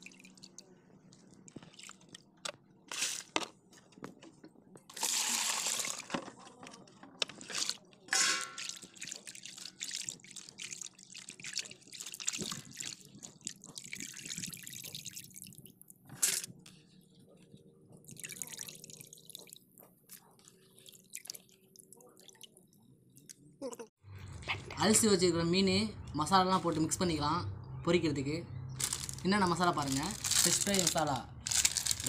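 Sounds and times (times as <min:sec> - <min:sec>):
water splashing in basin: 0:04.9 - 0:06.1, 0:07.4 - 0:15.7, 0:18.0 - 0:19.6.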